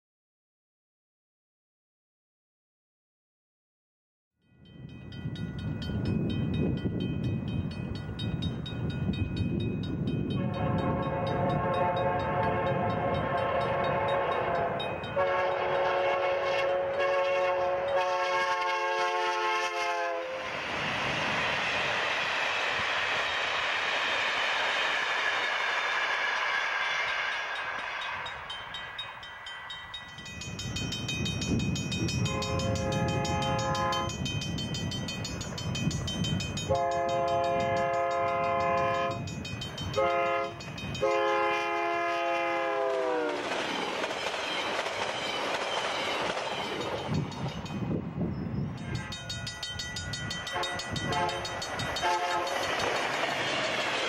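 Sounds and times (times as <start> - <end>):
train rumbling past: 4.6 - 54.0
diesel train rolling over rails: 4.7 - 54.0
locomotive horn blasts: 10.3 - 20.4, 32.2 - 34.2, 36.7 - 39.2, 40.0 - 43.4, 50.5 - 52.7.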